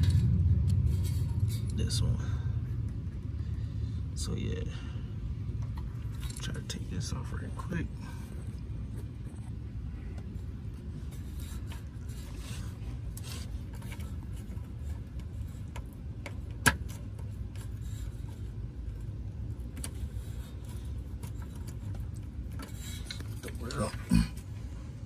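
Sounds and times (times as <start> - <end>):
steady low rumble: 0.0 - 25.0.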